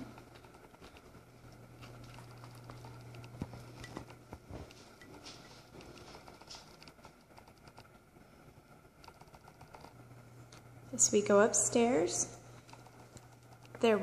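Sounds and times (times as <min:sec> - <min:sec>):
low steady hum: 0:00.0 - 0:14.0
footsteps on tile floor: 0:03.4 - 0:06.8.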